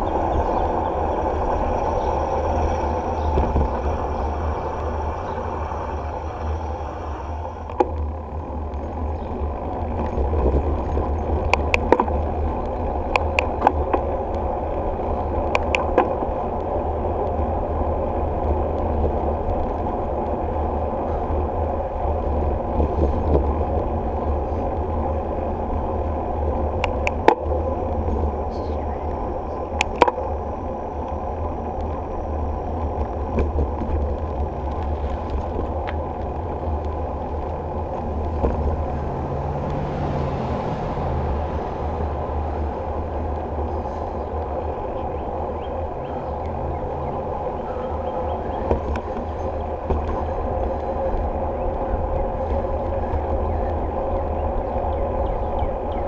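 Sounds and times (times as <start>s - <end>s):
bicycle tyres on asphalt: 0.0s - 56.0s
wind rumble: 0.0s - 56.0s.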